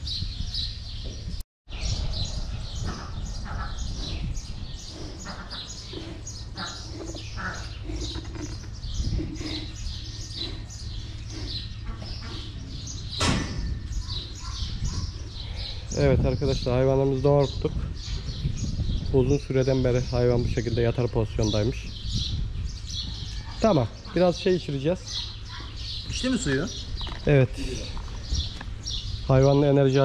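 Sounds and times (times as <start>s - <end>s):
steady low rumble: 0.0s - 23.5s
small birds chirping: 0.0s - 30.0s.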